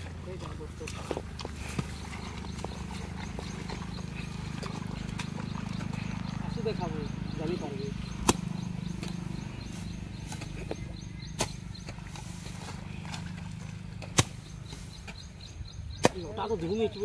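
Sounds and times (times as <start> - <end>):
steady low hum: 0.0 - 16.2
hoe striking wet soil: 8.0 - 9.3, 10.2 - 15.2, 15.9 - 16.5.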